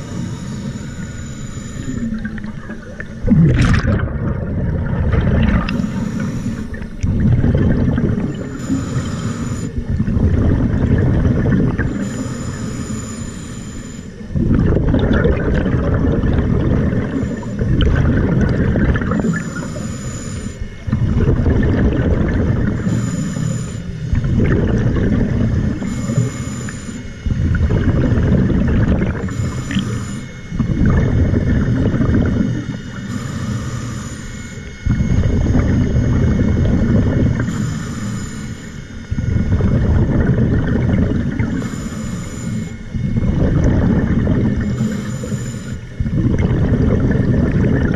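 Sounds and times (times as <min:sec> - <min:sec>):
exhaled air bubbling: 0:00.0 - 0:47.9
regulator inhale hiss: 0:05.7 - 0:06.8, 0:08.4 - 0:09.8, 0:11.9 - 0:14.2, 0:29.3 - 0:30.3, 0:32.9 - 0:34.6, 0:37.4 - 0:38.8, 0:41.4 - 0:42.9.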